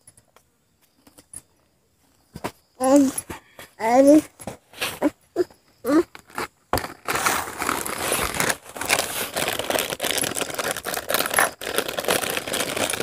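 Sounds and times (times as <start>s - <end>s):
plastic wrapper crinkling: 6.2s - 13.0s.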